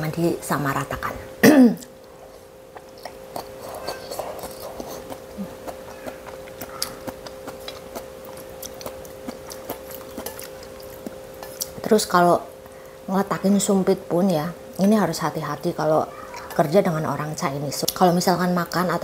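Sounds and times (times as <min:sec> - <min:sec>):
faint hum: 0:00.0 - 0:19.0
person chewing noodles: 0:01.8 - 0:11.8.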